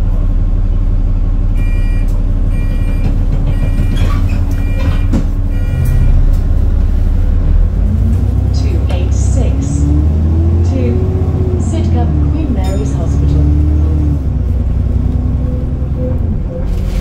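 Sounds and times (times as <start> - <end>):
bus engine running: 0.0 - 17.0
two-tone electronic beep: 1.6 - 4.0.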